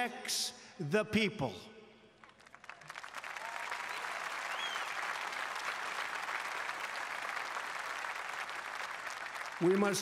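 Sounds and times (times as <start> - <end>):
crowd applauding: 2.2 - 10.0.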